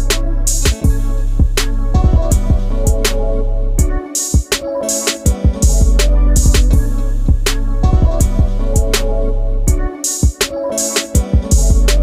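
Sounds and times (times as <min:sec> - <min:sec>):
drum beat: 0:00.0 - 0:03.1, 0:03.8 - 0:09.0, 0:10.1 - 0:12.0
deep bass line: 0:00.0 - 0:04.0, 0:05.6 - 0:09.9, 0:11.5 - 0:12.0.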